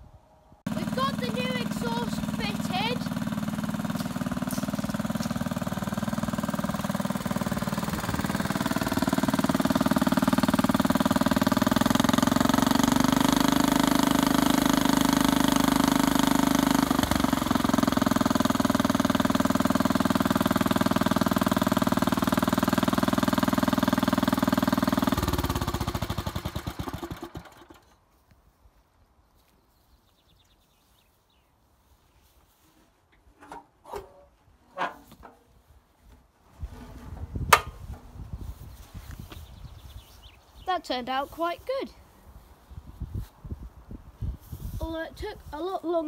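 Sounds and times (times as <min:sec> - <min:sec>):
engine shutting off: 0:00.7 - 0:28.0
garden tractor engine running: 0:00.7 - 0:28.1, 0:32.8 - 0:42.5, 0:44.4 - 0:46.0.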